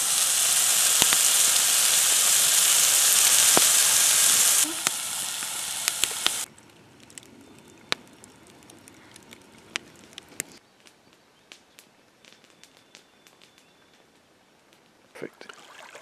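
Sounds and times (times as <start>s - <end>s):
steak sizzling in a skillet: 0.0s - 6.5s
campfire crackling and popping: 0.0s - 15.8s.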